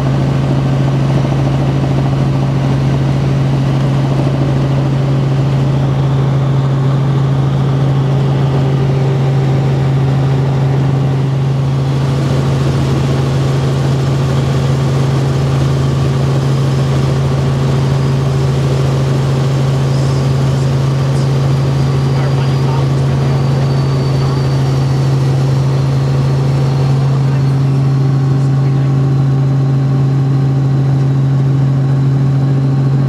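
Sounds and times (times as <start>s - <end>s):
helicopter engine and rotor drone: 0.0s - 33.0s.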